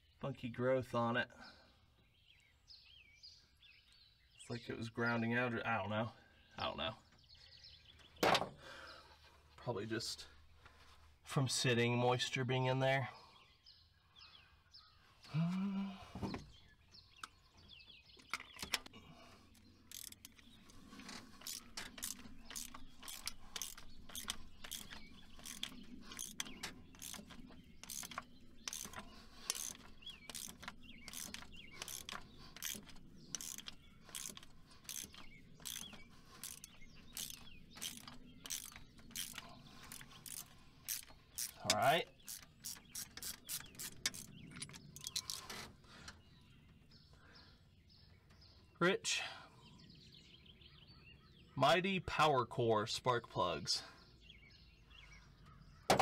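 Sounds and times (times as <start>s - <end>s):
ratchet wrench clicking: 19.9s - 20.4s, 21.4s - 45.4s.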